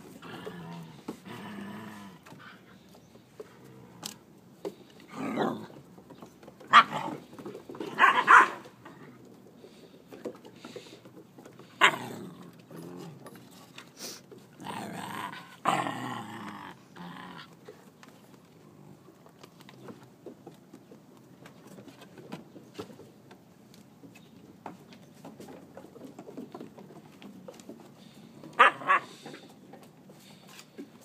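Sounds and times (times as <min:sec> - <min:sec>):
puppies growling and barking: 0:00.0 - 0:02.4, 0:05.1 - 0:05.9, 0:11.6 - 0:13.6, 0:14.5 - 0:17.6, 0:28.4 - 0:29.4.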